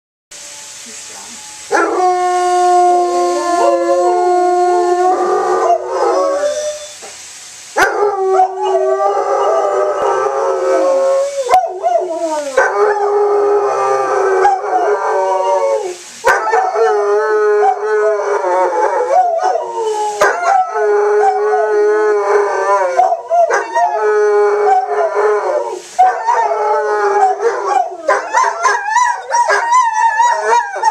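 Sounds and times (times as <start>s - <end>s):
dog howling: 7.8s - 30.9s.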